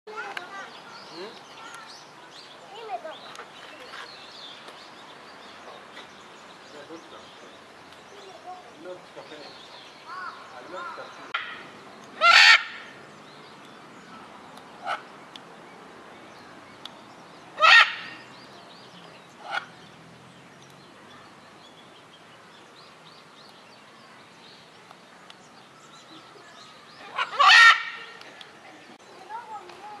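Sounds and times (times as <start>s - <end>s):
macaws screeching: 12.2s - 13.0s, 17.6s - 18.2s, 27.1s - 28.2s.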